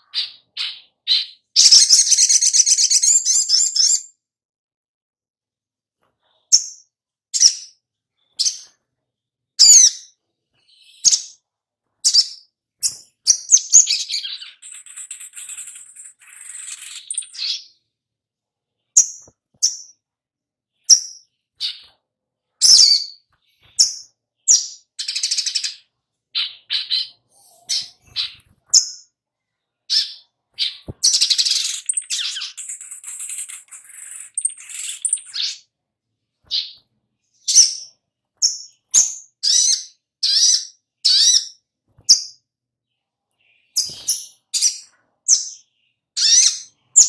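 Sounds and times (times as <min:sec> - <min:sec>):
bird chipping: 0:12.0 - 0:17.8, 0:22.6 - 0:29.1, 0:29.9 - 0:35.7, 0:37.4 - 0:42.4, 0:43.6 - 0:47.0
bird twittering: 0:12.0 - 0:17.8, 0:22.6 - 0:29.1, 0:29.9 - 0:35.6, 0:37.4 - 0:42.3, 0:43.6 - 0:47.0.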